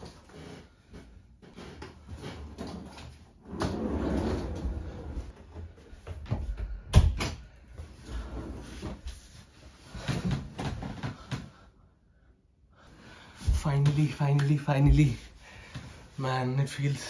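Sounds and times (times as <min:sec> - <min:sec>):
suitcases rolled across floor: 0:02.4 - 0:05.8.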